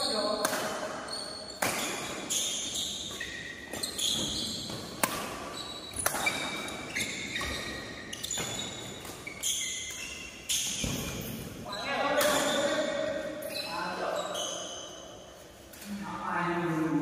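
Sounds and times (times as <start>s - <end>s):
shoes squeaking on court floor: 0.0s - 15.9s
racket striking shuttlecock: 0.3s - 1.0s, 1.6s - 10.0s.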